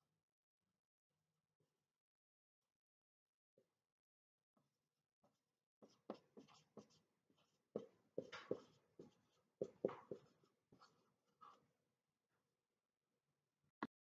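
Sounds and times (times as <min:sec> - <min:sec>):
marker writing on whiteboard: 0:05.8 - 0:11.7.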